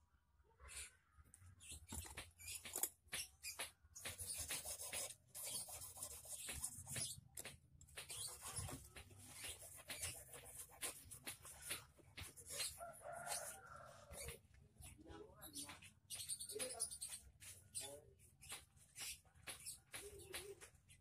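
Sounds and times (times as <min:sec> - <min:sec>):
hand file rasping on steel wire: 0:04.0 - 0:13.6.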